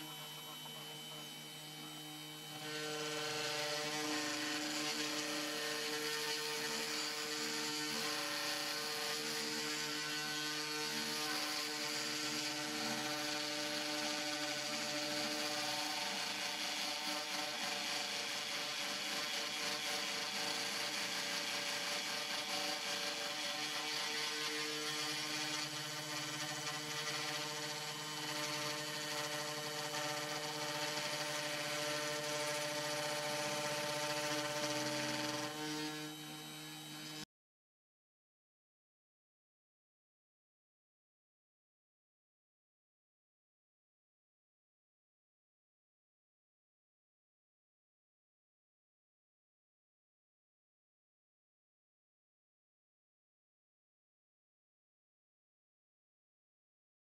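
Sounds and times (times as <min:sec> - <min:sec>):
cnc spindle motor whining: 0:00.0 - 0:37.2
engraving bit carving wood: 0:00.0 - 0:37.3.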